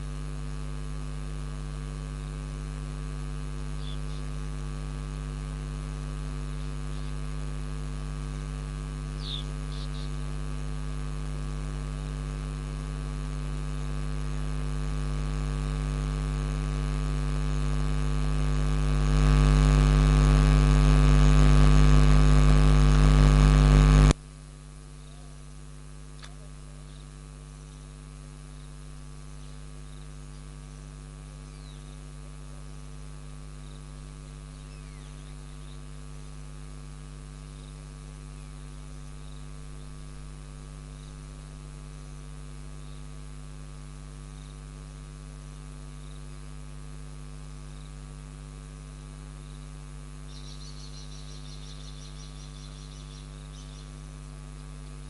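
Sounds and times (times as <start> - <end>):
electrical mains hum: 0.0 - 55.0
faint high chirps: 9.2 - 10.1, 50.3 - 53.9.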